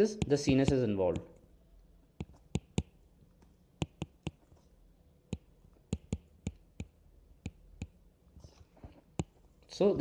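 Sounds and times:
stylus tapping on tablet screen: 0.0 - 1.4, 2.2 - 4.6, 5.3 - 8.0, 8.9 - 9.4.

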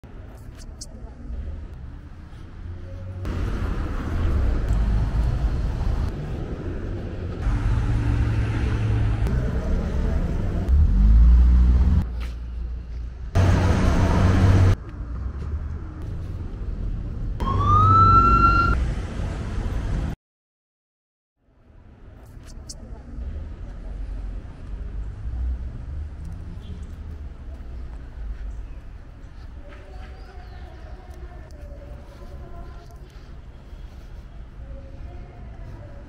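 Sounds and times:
traffic rumbling past: 1.3 - 20.2
rising siren-like tone: 17.4 - 18.8.

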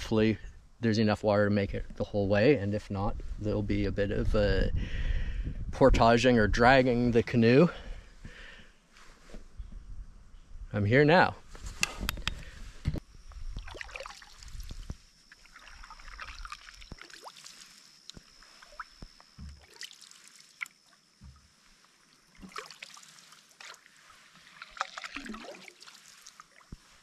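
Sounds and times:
paddle splashing water: 13.6 - 27.0.

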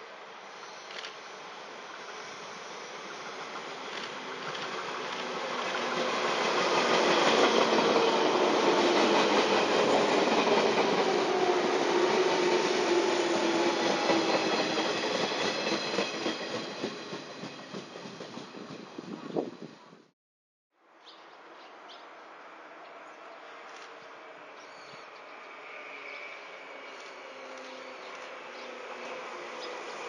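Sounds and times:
train passing: 0.1 - 20.1, 22.3 - 30.0.

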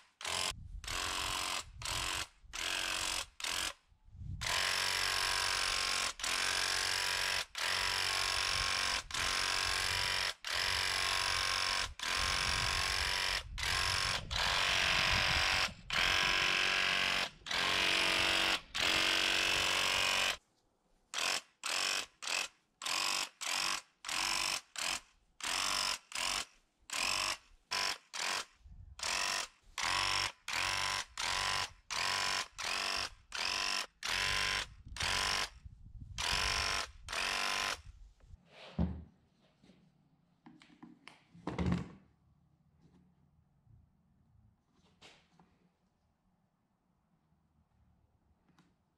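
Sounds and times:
electric paint sprayer bursts: 4.5 - 20.4.

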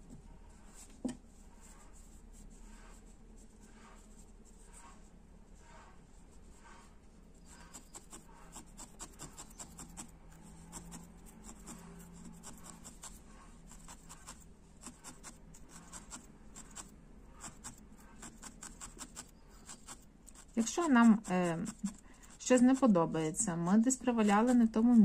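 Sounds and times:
felting needle jabbing wool: 7.4 - 25.0.

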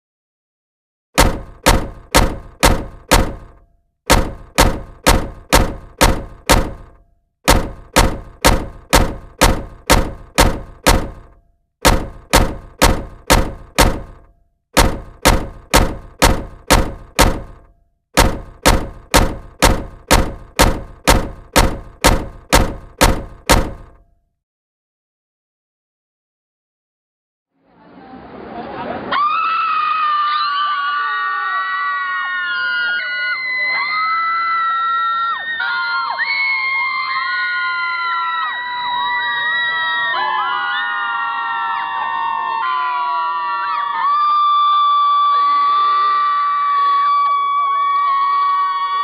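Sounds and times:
heavy thunk hits ringing: 1.2 - 24.0.

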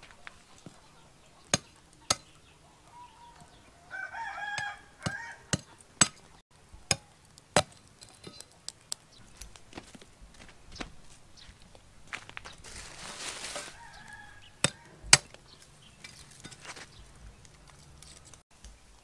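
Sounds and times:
knife blade striking charcoal: 1.4 - 2.5, 4.5 - 9.6, 13.4 - 16.9
rooster crowing: 2.8 - 5.6, 13.5 - 15.3.

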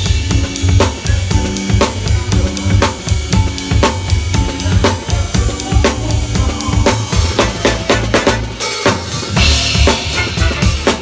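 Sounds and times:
bass and instruments playing: 0.0 - 11.0
hi-hat strokes: 0.0 - 11.0
snare drum accents: 6.9 - 11.0.

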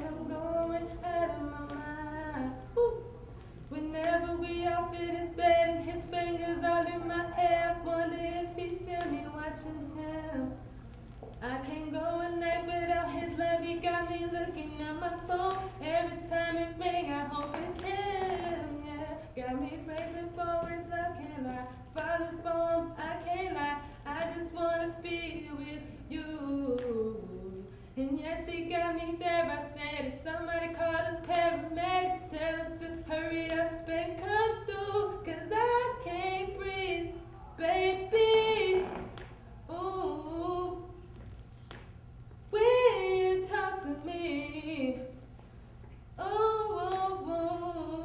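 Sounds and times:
woman singing a cappella: 0.0 - 41.8, 42.5 - 45.4, 46.2 - 48.0
breaths: 27.6 - 28.0.

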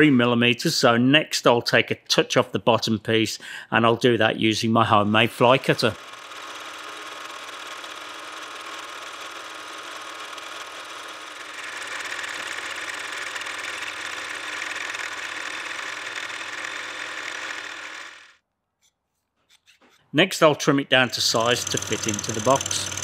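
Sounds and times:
milling machine cutting metal: 5.3 - 18.3, 21.2 - 23.0.

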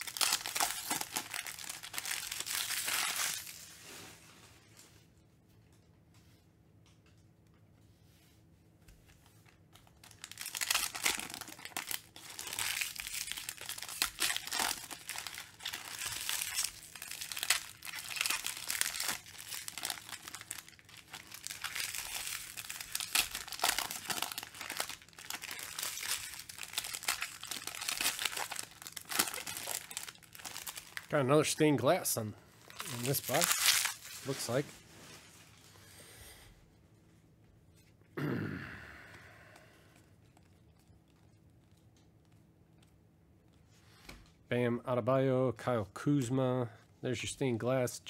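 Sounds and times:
foil wrappers crinkling and tearing: 0.0 - 3.8, 9.2 - 31.6, 32.6 - 35.6.

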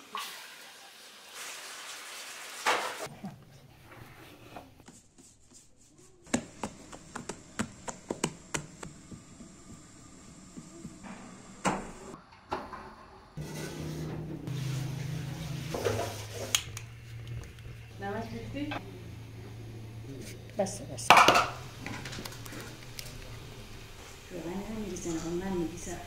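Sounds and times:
dough kneading rustle: 3.0 - 12.0
hands slapping dough: 4.8 - 9.2.

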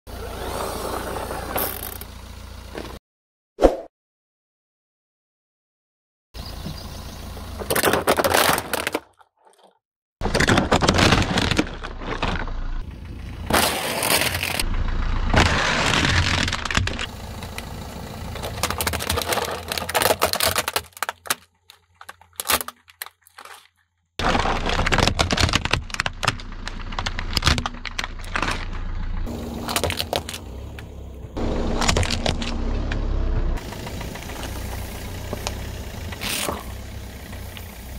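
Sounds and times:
hard plastic cracking and snapping: 15.4 - 17.1, 18.4 - 28.6, 29.6 - 30.4
plastic pack cracking: 15.8 - 17.1, 18.4 - 28.6, 29.6 - 30.4.

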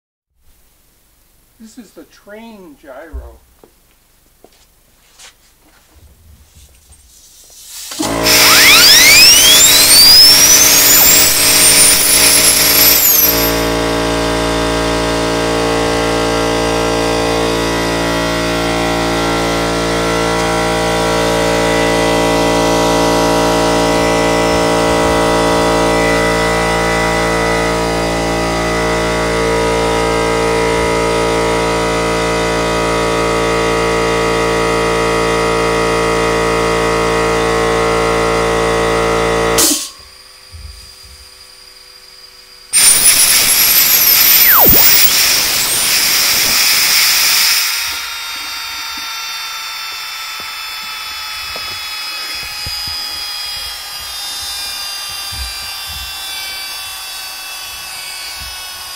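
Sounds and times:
compressed air hiss: 7.0 - 8.1
gyroscope rotor whining: 7.3 - 33.4, 38.0 - 58.9.

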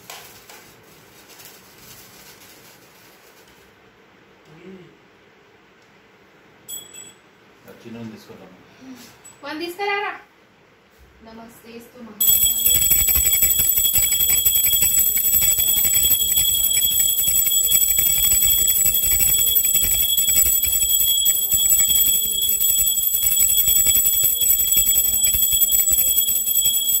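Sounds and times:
brass hand bell ringing rapidly: 12.2 - 27.0.

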